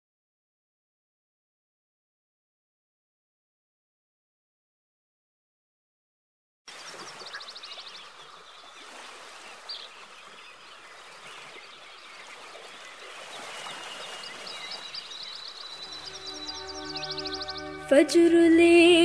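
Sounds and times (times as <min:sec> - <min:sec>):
high songbird trills: 0:06.7 - 0:17.9
many birds chattering: 0:06.8 - 0:17.9.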